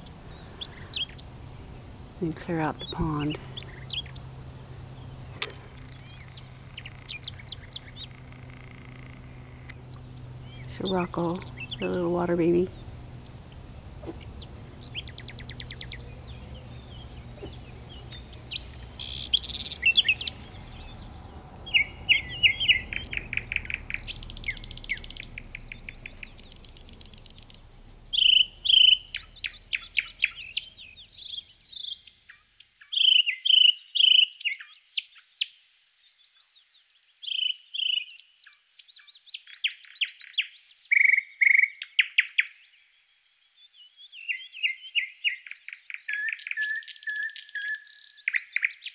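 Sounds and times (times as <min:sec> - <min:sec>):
low background rumble: 0:00.0 - 0:32.0
songbirds singing and chirping: 0:00.0 - 0:48.9.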